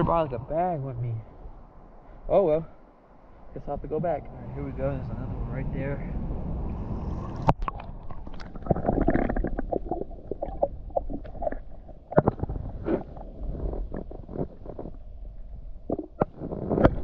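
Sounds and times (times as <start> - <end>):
muffled underwater slosh: 6.8 - 17.0
underwater clicks and knocks: 7.4 - 17.0.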